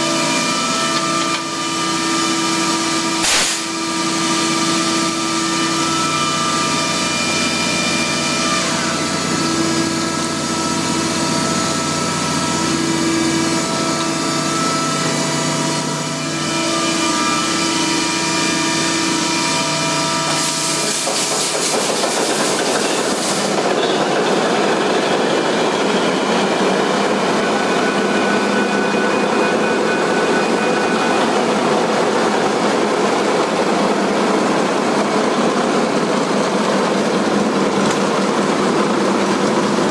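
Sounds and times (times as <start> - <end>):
engine-room machinery hum: 0.0 - 39.9
loud hiss: 3.2 - 3.7, 20.3 - 23.6.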